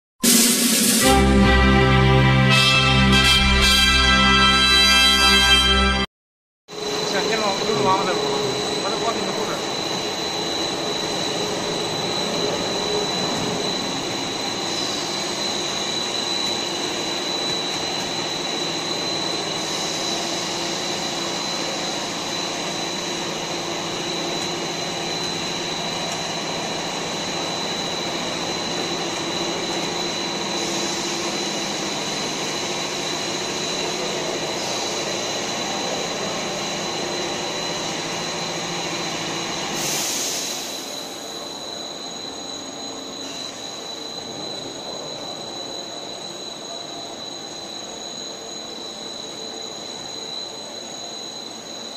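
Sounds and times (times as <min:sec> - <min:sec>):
high-pitched whine: 0:00.2 - 0:06.1, 0:06.7 - 0:51.9
machine drone: 0:00.2 - 0:06.1, 0:06.7 - 0:41.5
high hiss: 0:06.8 - 0:51.9.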